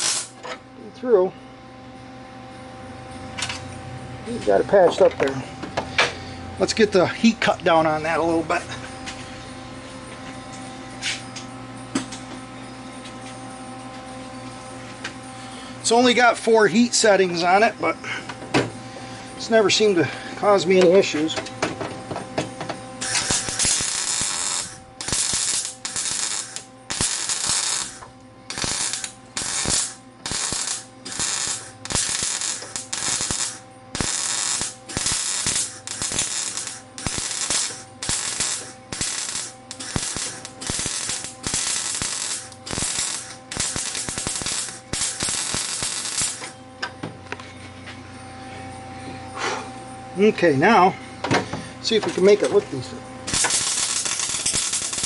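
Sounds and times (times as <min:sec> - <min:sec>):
welder arc crackling: 0:00.0 - 0:00.4, 0:23.0 - 0:46.6, 0:51.8 - 0:55.0.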